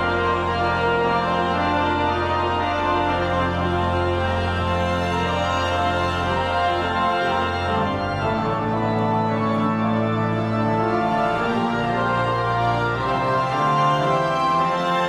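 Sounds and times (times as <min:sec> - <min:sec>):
pipe organ playing chords: 0:00.0 - 0:15.0.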